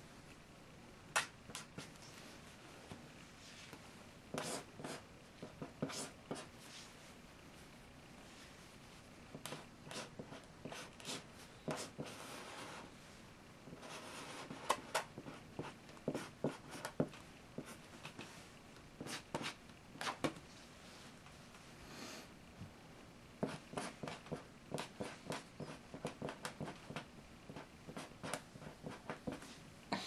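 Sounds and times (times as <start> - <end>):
pens scratching on paper: 4.3 - 6.5.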